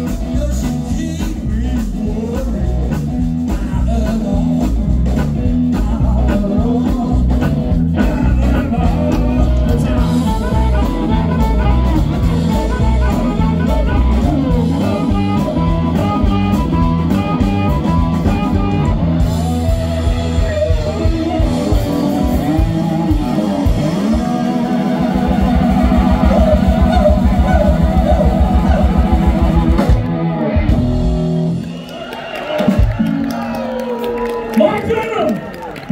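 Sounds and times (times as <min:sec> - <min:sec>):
electric guitar bending notes: 0:00.0 - 0:31.8
blues-rock band playing: 0:00.0 - 0:35.9
voices singing: 0:19.6 - 0:29.7.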